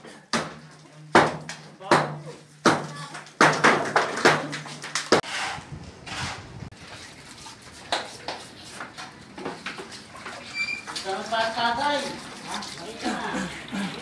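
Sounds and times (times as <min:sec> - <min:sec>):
hammer striking concrete: 0:00.3 - 0:05.6
light knocks and scrapes: 0:05.2 - 0:11.5.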